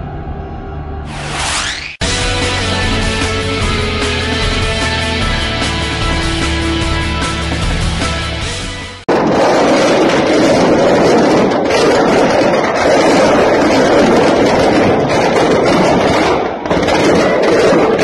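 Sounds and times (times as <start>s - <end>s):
firecrackers crackling and banging: 9.1s - 18.0s.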